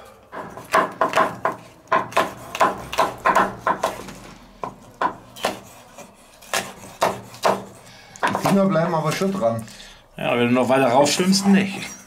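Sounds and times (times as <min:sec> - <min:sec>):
knife chopping on wooden board: 0:00.4 - 0:09.3.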